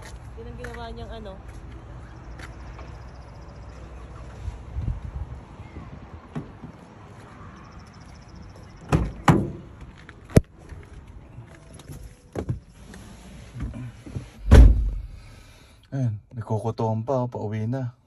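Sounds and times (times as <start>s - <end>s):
car door thumps: 14.4s - 15.1s.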